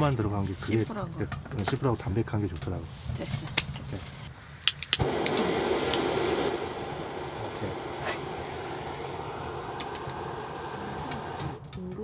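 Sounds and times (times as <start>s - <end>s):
camping stove burner hissing: 4.2s - 12.0s.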